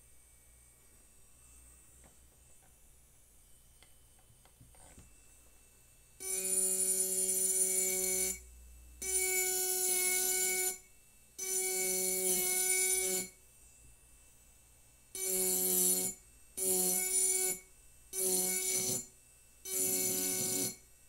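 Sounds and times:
engraving pen buzzing on glass: 0:00.0 - 0:21.0.

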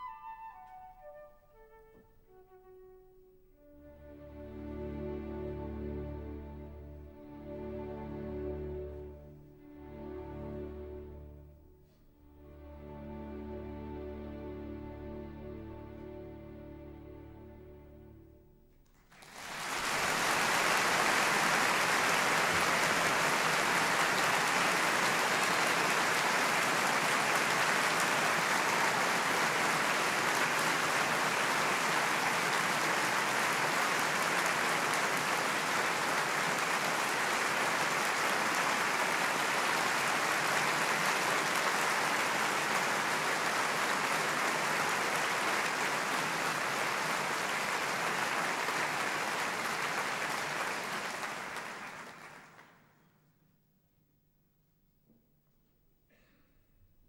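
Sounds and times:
audience applause: 0:18.9 - 0:52.9.

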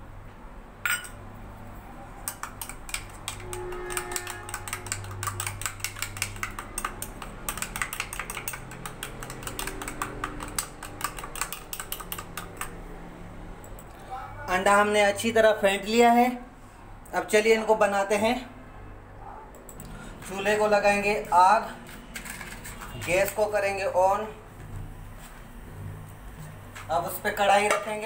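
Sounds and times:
spoon clicking against ceramic bowl: 0:02.2 - 0:12.8.

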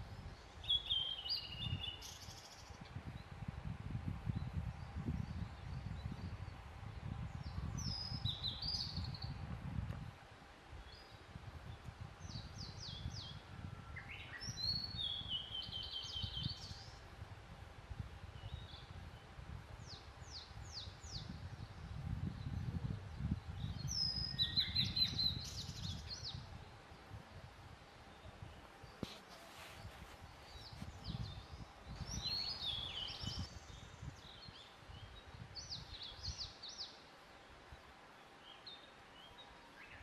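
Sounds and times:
bird singing: 0:00.3 - 0:02.8, 0:07.0 - 0:09.4, 0:12.2 - 0:17.0, 0:19.8 - 0:26.5, 0:30.4 - 0:37.1, 0:37.7 - 0:40.0.

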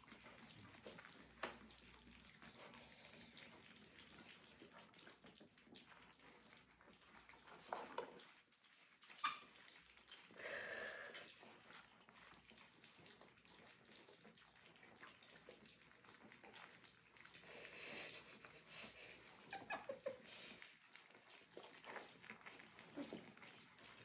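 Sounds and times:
puppies lapping food: 0:00.0 - 0:24.0
puppy whining: 0:18.9 - 0:20.8, 0:21.8 - 0:23.9.

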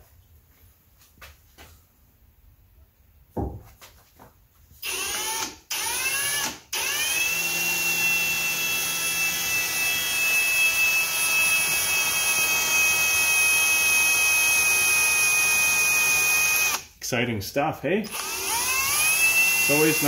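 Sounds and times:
cordless drill whining: 0:04.8 - 0:16.9, 0:18.1 - 0:20.0.

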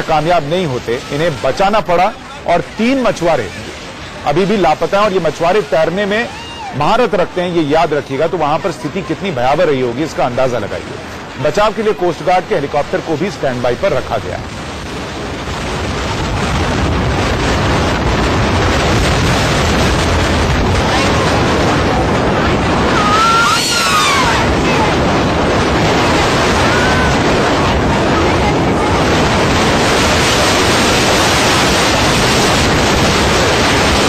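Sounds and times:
surf crashing: 0:00.0 - 0:34.0
wind blowing on microphone: 0:00.0 - 0:34.0
high sliding cries: 0:22.9 - 0:25.0.

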